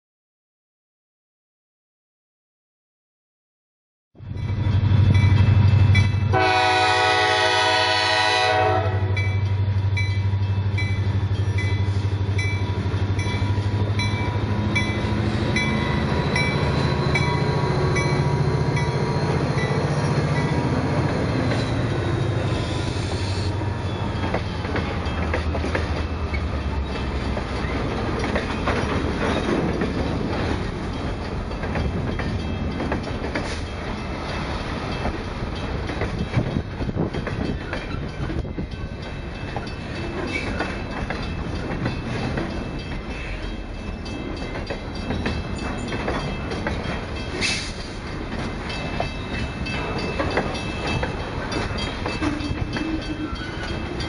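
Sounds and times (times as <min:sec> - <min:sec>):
crossing bell dinging: 0:04.2 - 0:54.0
diesel locomotive engine drone: 0:04.2 - 0:54.0
locomotive horn blast: 0:06.3 - 0:09.2
train wheels clattering over rail joints: 0:24.1 - 0:43.2, 0:43.9 - 0:54.0.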